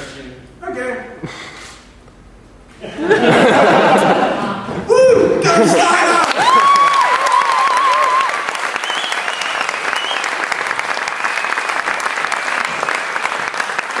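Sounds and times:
audience applauding: 5.8 - 14.0
high whistles: 7.0 - 11.8.

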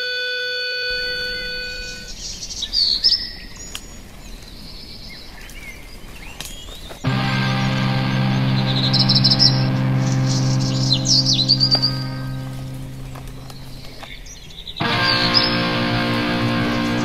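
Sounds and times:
birds chirping: 0.9 - 17.0
music: 7.1 - 13.8, 14.8 - 17.0
held musical chord: 7.1 - 14.0, 14.8 - 17.0.

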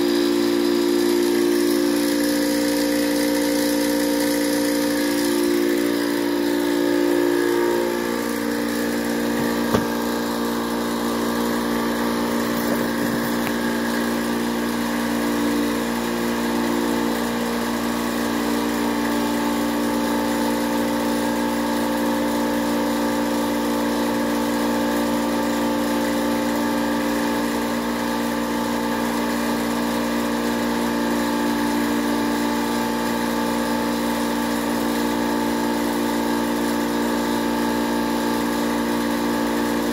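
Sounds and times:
air compressor humming: 0.0 - 39.9.

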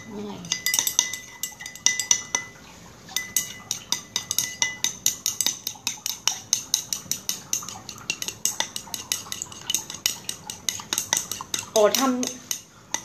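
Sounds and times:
utensil clicking against bowl: 3.2 - 13.0.

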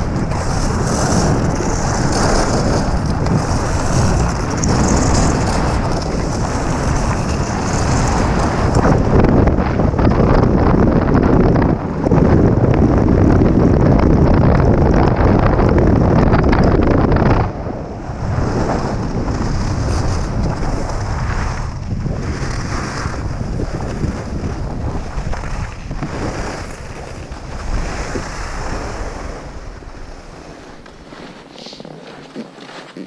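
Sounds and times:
wind buffeting microphone: 0.0 - 33.0
skis hissing over snow: 30.1 - 33.0.

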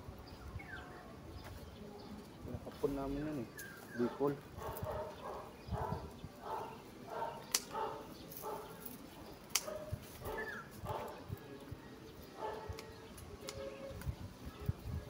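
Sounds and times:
dog barking: 4.0 - 8.8, 9.6 - 11.3, 12.4 - 12.8
sharp clicks: 7.4 - 7.9, 9.5 - 9.9.

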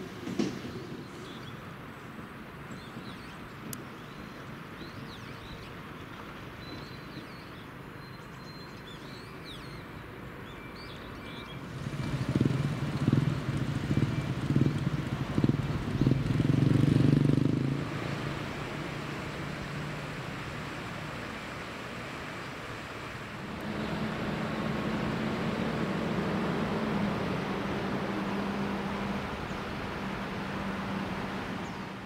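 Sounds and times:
river rapids rushing: 11.6 - 32.0
vehicle engine passing: 11.6 - 32.0.

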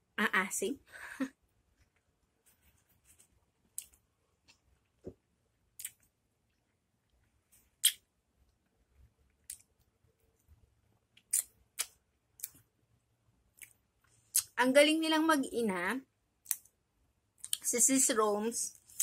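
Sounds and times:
wet mouth smacks: 5.8 - 6.1, 7.8 - 8.0.

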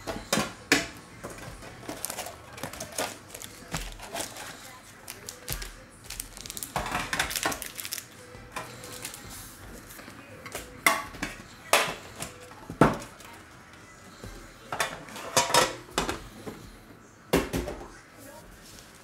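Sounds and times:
foil packs crinkling: 1.5 - 10.1.

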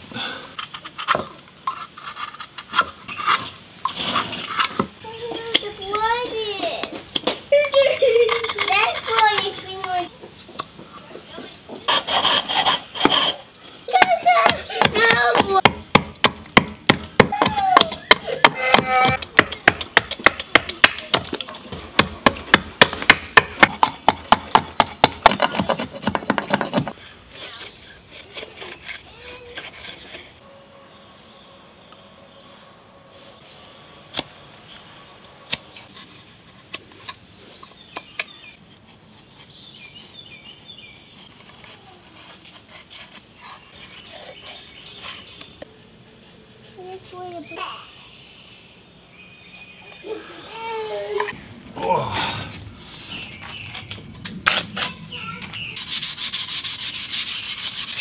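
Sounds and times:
knife carving wood: 0.6 - 6.0, 11.9 - 13.5, 14.4 - 30.4, 35.5 - 45.7, 55.8 - 58.0
hatchet chopping wood: 14.0 - 27.0.

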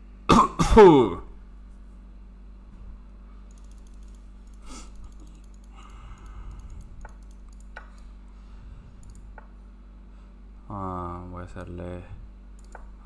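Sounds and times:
low electrical hum: 0.0 - 13.0
mouse and keyboard clicks: 3.5 - 8.1, 9.0 - 9.5, 12.6 - 12.9.

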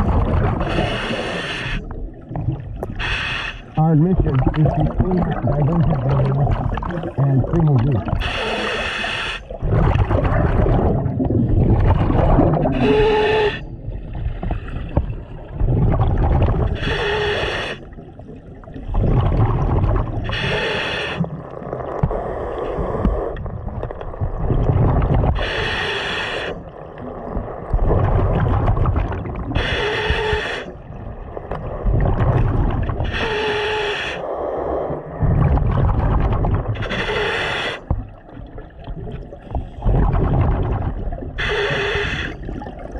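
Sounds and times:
exhaled bubbles gurgling: 0.0 - 42.9
regulator inhale hiss: 0.7 - 2.0, 3.0 - 3.8, 8.2 - 9.6, 12.8 - 13.7, 16.8 - 17.9, 20.3 - 21.3, 25.4 - 26.7, 29.6 - 30.7, 33.1 - 35.0, 36.8 - 37.9, 41.4 - 42.4.

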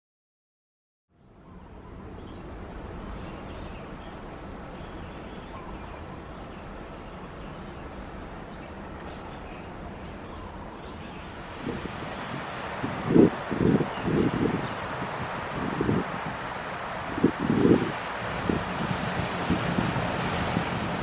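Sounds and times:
wind: 1.1 - 21.0
faint bird chirps: 1.2 - 12.4
wind gusts on microphone: 1.4 - 21.0.

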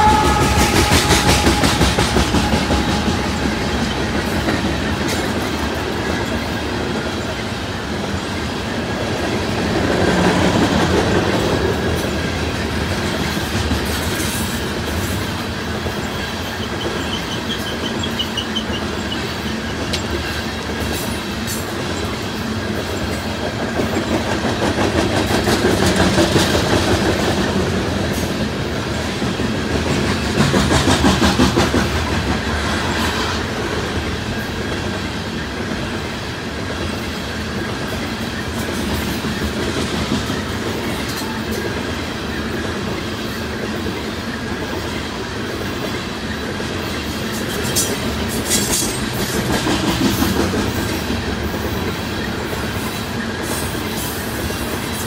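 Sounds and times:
thin wavering squeal: 0.0 - 4.2
train wheels clacking over rail joints: 0.0 - 55.0.

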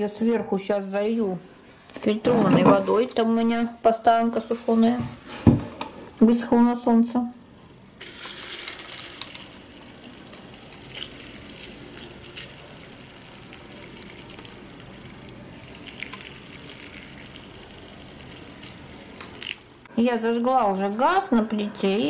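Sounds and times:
water pouring into kettle: 8.0 - 19.8.

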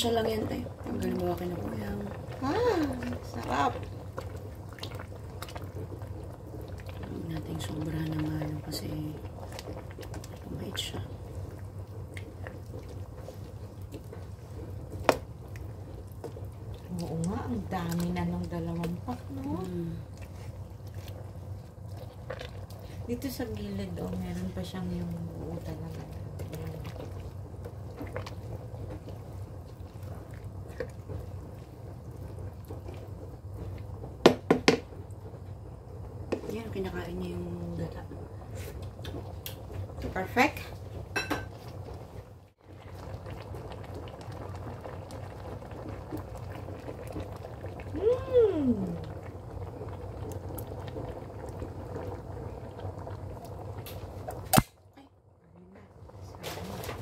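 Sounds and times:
utensil stirring wet food: 0.0 - 34.8
steady low hum: 0.0 - 57.0
stew simmering and bubbling: 0.0 - 57.0.

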